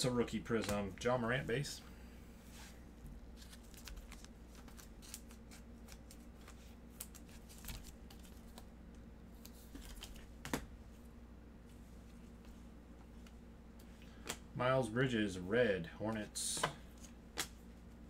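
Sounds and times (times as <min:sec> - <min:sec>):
cards clicking and rustling: 0:03.4 - 0:08.7.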